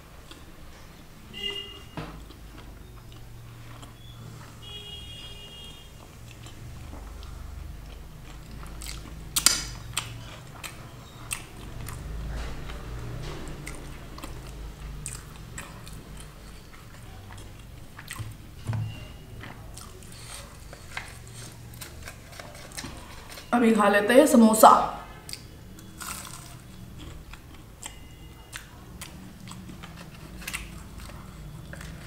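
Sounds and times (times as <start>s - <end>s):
chewing with wet smacks: 0.2s - 0.8s, 2.2s - 4.6s, 5.5s - 23.5s, 25.2s - 32.0s
crisp crunch while eating: 19.7s - 23.5s, 25.4s - 28.0s, 28.6s - 32.0s.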